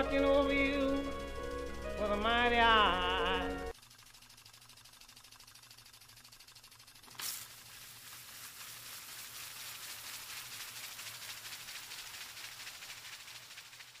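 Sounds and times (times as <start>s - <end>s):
steady hiss: 7.1s - 14.0s.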